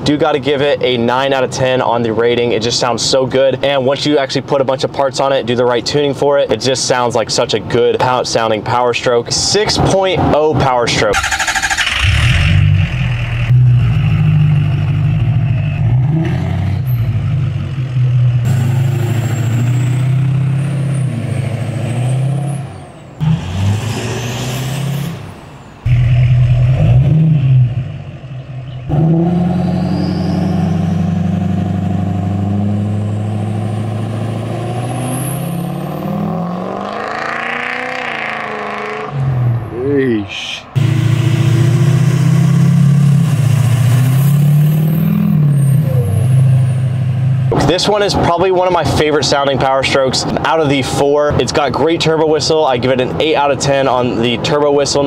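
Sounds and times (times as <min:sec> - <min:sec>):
diesel engine revving: 0:11.0 - 0:50.6
turbo whistle: 0:29.6 - 0:31.0.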